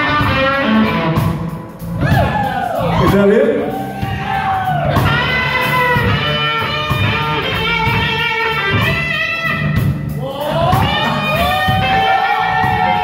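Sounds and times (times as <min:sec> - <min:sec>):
electric guitar melody: 0:00.0 - 0:02.2, 0:02.8 - 0:13.0
live blues band playing: 0:00.0 - 0:13.0.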